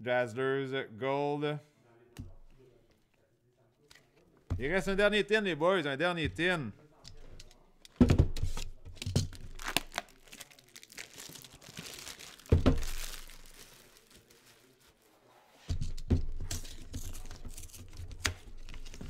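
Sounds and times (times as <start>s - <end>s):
plastic wrapping crinkling and tearing: 9.2s - 15.2s, 16.6s - 19.0s.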